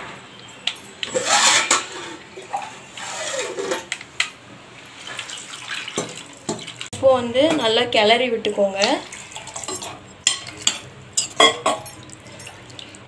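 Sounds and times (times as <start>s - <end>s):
water pouring into a pot: 5.0s - 6.9s, 11.2s - 13.0s.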